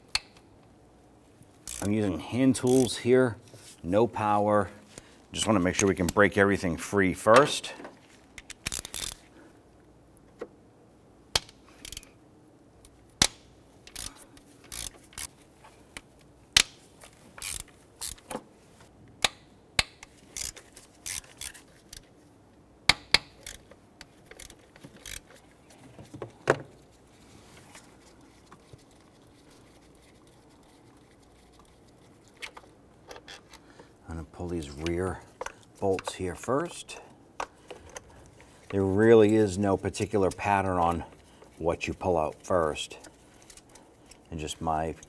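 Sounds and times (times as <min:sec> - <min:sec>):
hand ratchet clicking: 0:01.6 - 0:02.0, 0:02.6 - 0:02.9, 0:08.4 - 0:09.2, 0:11.4 - 0:12.1, 0:13.2 - 0:15.3, 0:17.4 - 0:18.2, 0:19.2 - 0:22.0, 0:22.9 - 0:25.4.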